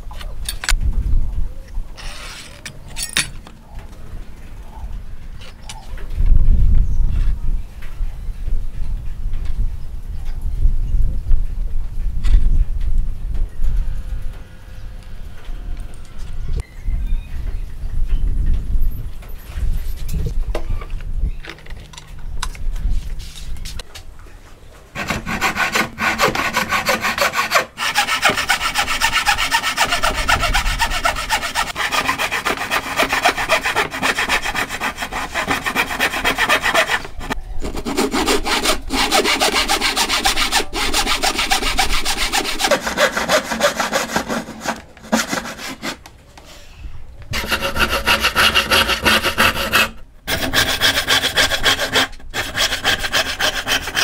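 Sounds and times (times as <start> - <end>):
frame saw cutting wood: 25.0 - 46.0, 47.4 - 54.0.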